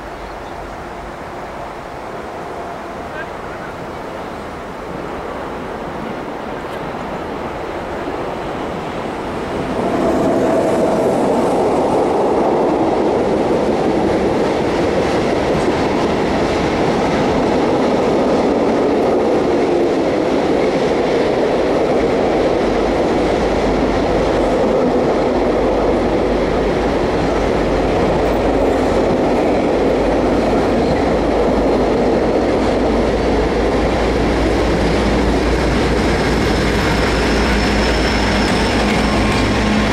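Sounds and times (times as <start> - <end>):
diesel locomotive drone: 0.0 - 39.9
train wheels clacking over rail joints: 9.8 - 39.9.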